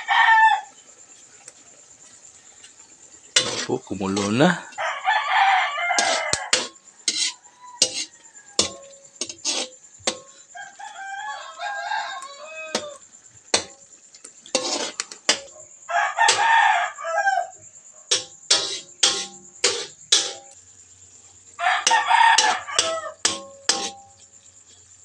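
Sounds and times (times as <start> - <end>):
rooster crowing: 0.0 - 0.8, 3.9 - 8.9, 10.5 - 13.2, 15.8 - 17.7, 21.6 - 23.9
metal ladle scraping wok: 3.3 - 4.3, 6.0 - 10.5, 13.5 - 15.5, 18.1 - 20.6, 21.8 - 24.9.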